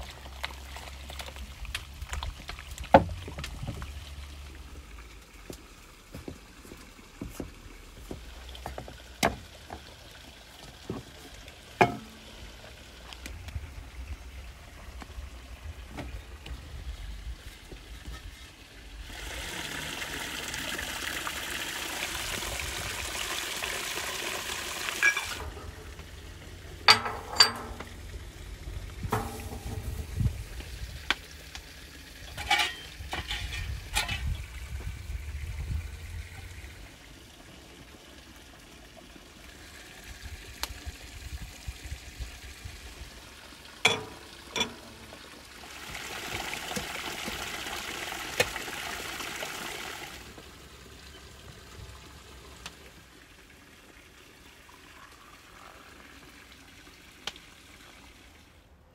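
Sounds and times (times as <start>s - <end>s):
water pouring onto rocks: 0.0s - 13.8s, 18.8s - 37.0s, 38.5s - 51.0s
metal peel knocking and scraping: 11.8s - 12.2s, 26.8s - 28.0s, 29.0s - 30.3s, 32.3s - 34.3s, 43.9s - 45.0s.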